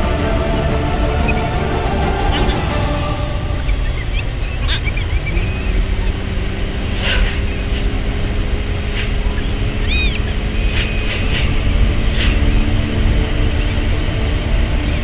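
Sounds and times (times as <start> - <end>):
car road and engine rumble: 0.0 - 15.0
low hum: 0.0 - 15.0
high chirp: 2.2 - 6.2.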